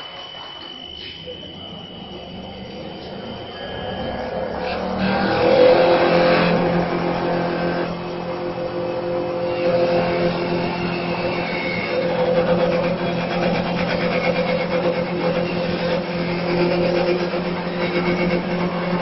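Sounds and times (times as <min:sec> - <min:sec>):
steady motor hum: 0:00.2 - 0:19.0
lathe tool rasping through wood: 0:03.0 - 0:19.0.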